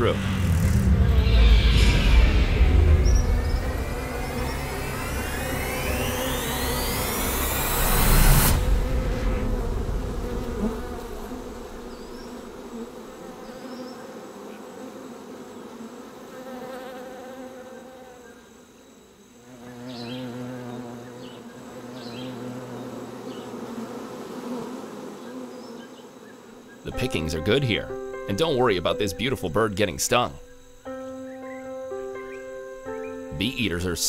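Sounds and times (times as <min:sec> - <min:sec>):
loud whoosh: 0:00.0 - 0:12.6
honeybees buzzing: 0:00.0 - 0:34.0.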